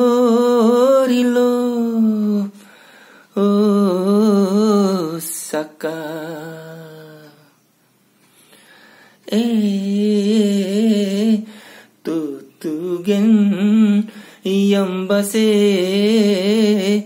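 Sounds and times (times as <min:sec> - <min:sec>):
man singing unaccompanied: 0:00.0 - 0:07.7, 0:09.2 - 0:17.0.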